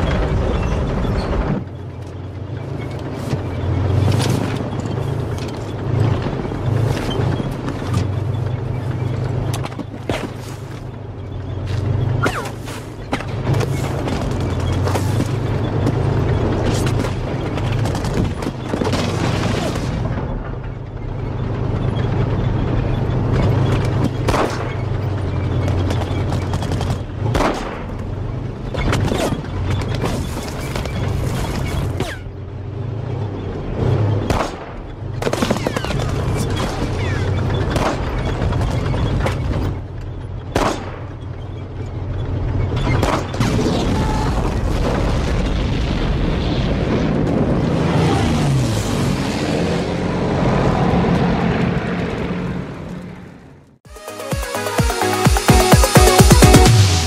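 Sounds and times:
gunshots: 0:24.0 - 0:25.0, 0:25.8 - 0:28.0, 0:34.2 - 0:38.8, 0:40.5 - 0:41.2
pistol shots: 0:40.5 - 0:41.1
explosions: 0:43.0 - 0:52.8.

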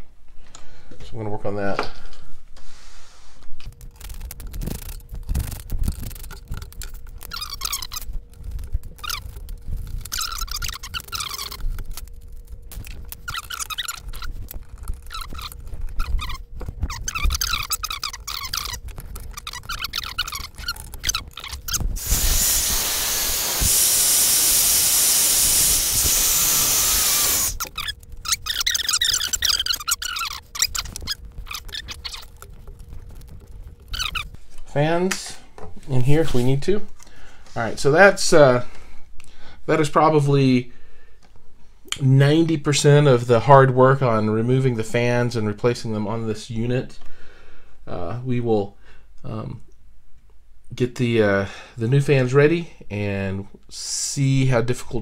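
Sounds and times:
screwdriver turning screws: 0:12.7 - 0:34.3
hair dryer blowing: 0:22.0 - 0:27.6.

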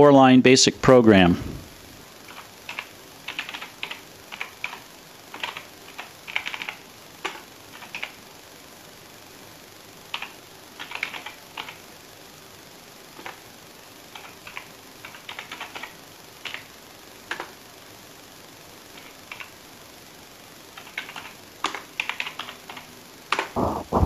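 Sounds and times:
low thump: 0:23.6 - 0:24.0.

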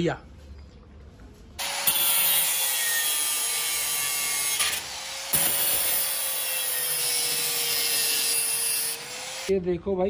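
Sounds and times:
angle grinder grinding steel: 0:01.6 - 0:09.5.

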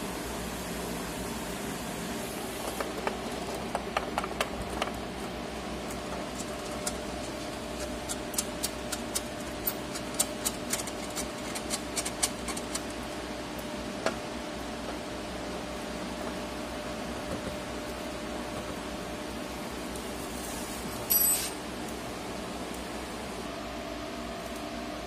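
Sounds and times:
printer mechanical hum with tones: 0:00.0 - 0:25.0.

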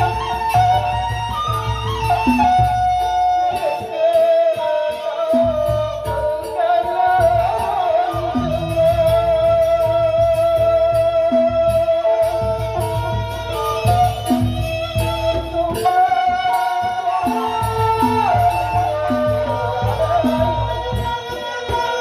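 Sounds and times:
bamboo flute: 0:00.0 - 0:22.0
man singing into a microphone: 0:03.3 - 0:22.0
low drum beats: 0:05.3 - 0:22.0.

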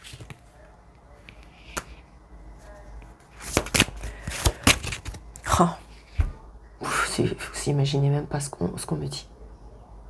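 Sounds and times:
cards being shuffled: 0:00.0 - 0:00.4, 0:03.3 - 0:05.4
card slaps and clicks: 0:03.4 - 0:05.2.

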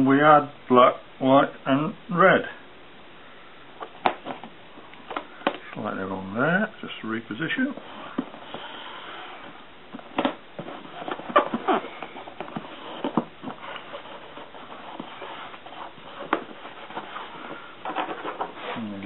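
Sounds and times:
fingers rubbing plastic tape: 0:07.8 - 0:18.7.

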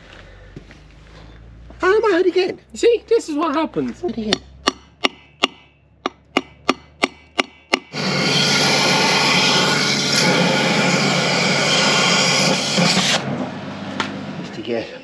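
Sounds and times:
hammer striking chisel on metal: 0:04.3 - 0:08.0.

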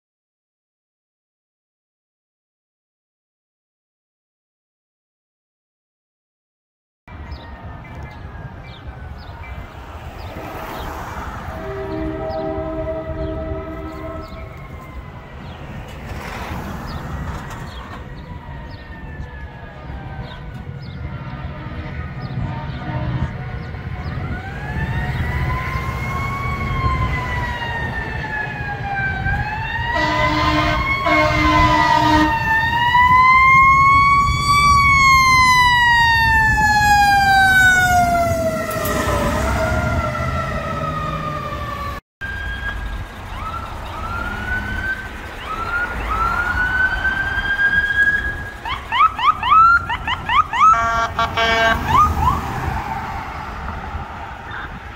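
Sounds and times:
fire truck siren wailing: 0:07.1 - 0:54.8
air horn blasts: 0:11.5 - 0:14.7, 0:21.1 - 0:23.8, 0:29.9 - 0:32.5, 0:50.6 - 0:52.0
siren whooping and yelping: 0:24.2 - 0:52.8.

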